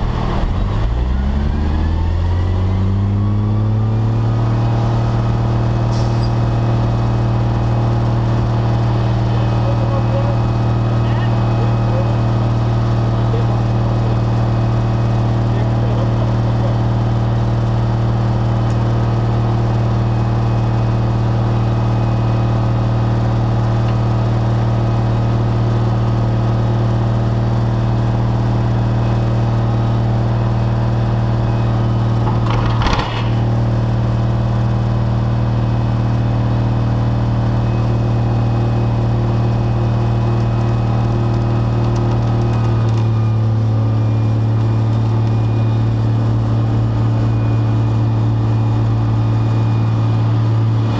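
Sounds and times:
diesel engine droning: 0.0 - 50.9
sharp metal clunk: 32.3 - 33.5.

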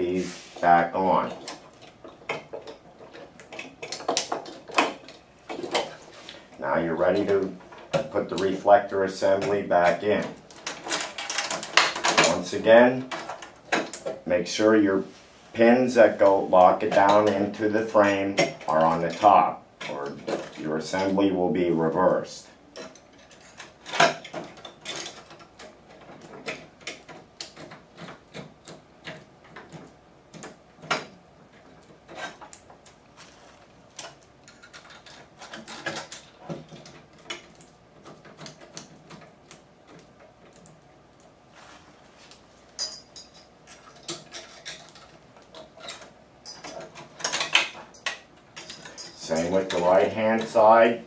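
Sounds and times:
metallic clicks and knocks: 1.2 - 6.0, 9.3 - 14.2, 22.7 - 33.0, 33.9 - 41.3, 42.8 - 50.9.

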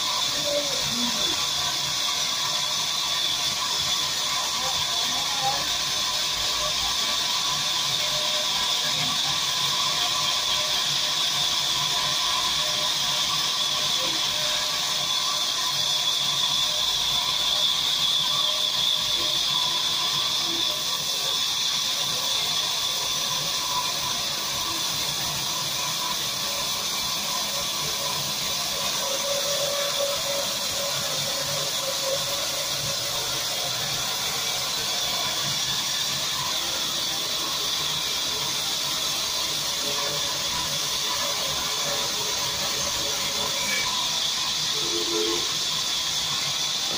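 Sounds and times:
band saw cutting wood: 11.2 - 46.9.

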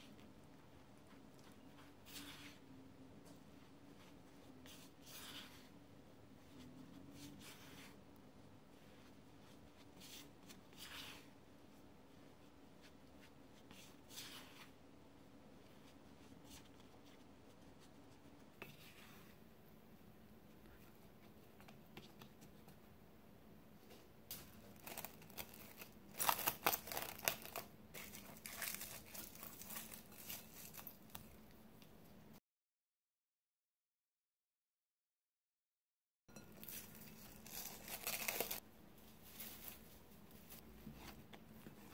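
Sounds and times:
bread dough scraping in a bowl: 1.5 - 2.7, 3.4 - 5.8, 6.4 - 8.1, 8.7 - 11.8, 12.8 - 14.8, 15.6 - 19.4
plastic cling wrap crinkling: 24.3 - 31.5, 36.6 - 38.6.

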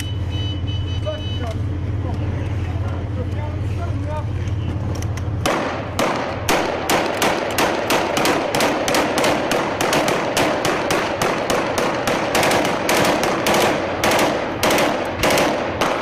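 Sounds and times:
rapid rifle gunfire: 5.4 - 16.0.

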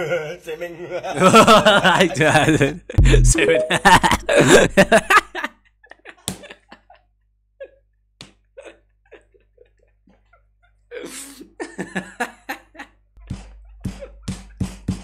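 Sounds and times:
man laughing: 1.1 - 7.0, 11.6 - 12.9
man snorting stifled laughter: 3.0 - 3.3.

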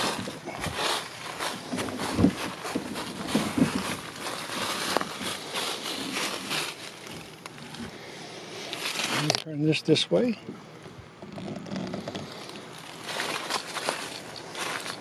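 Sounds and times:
footsteps through leaves: 0.0 - 7.8, 8.6 - 9.3, 12.7 - 15.0
plastic tank wheels rolling over leaves: 0.0 - 8.0, 8.6 - 9.5, 11.2 - 15.0.

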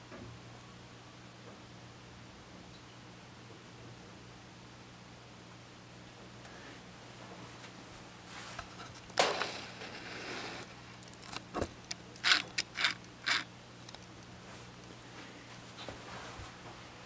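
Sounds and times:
brush scraping canvas: 9.5 - 10.8.

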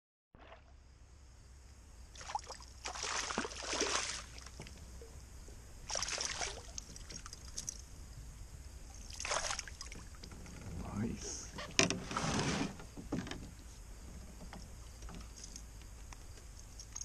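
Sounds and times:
fish thrashing and splashing: 2.2 - 4.6, 5.9 - 7.8, 8.9 - 10.2.

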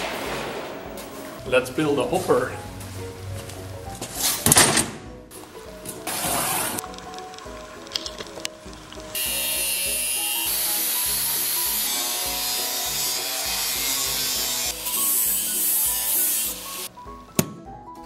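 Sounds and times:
angle grinder cutting steel sheet: 9.2 - 16.9.

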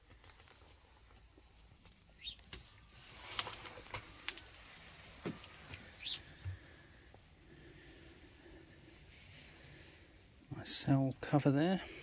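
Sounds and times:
faint rustling: 0.0 - 10.9
bird chirping: 2.1 - 2.8, 5.4 - 6.4.

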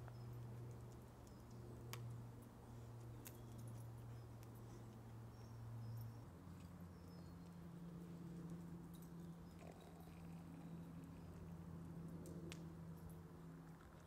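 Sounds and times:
distant propeller aircraft drone: 0.0 - 14.0.

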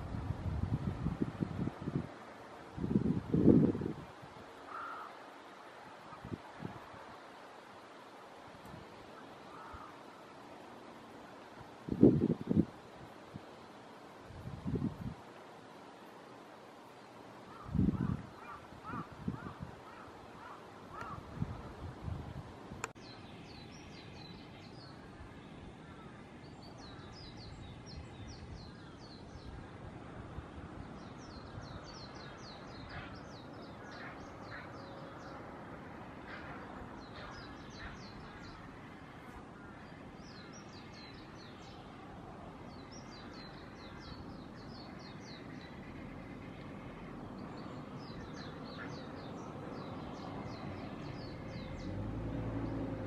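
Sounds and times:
crows cawing: 4.7 - 5.3, 9.5 - 10.0, 17.5 - 21.3.

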